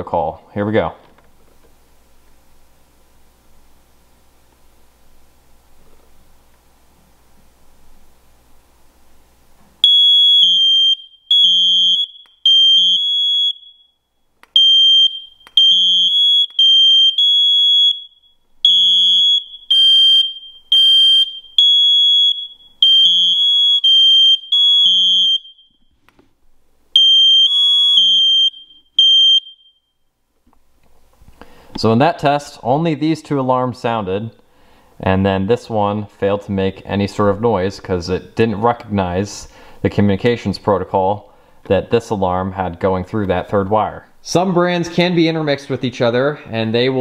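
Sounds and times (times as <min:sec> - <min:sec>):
smoke alarms beeping: 0:09.8 - 0:26.0, 0:26.9 - 0:30.2.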